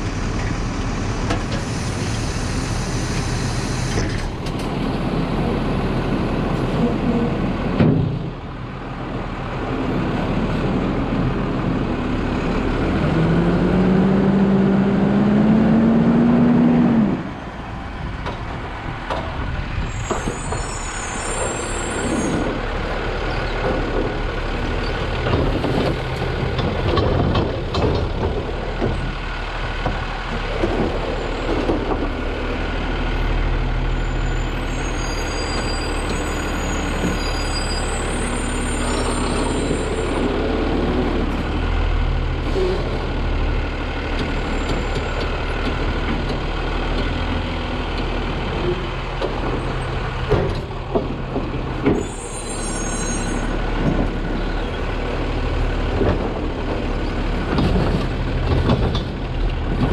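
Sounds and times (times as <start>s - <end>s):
garbage truck engine running: 0.0s - 59.9s
hydraulics whining: 10.3s - 59.9s
trash knocking and clattering: 25.2s - 29.2s, 55.8s - 59.9s.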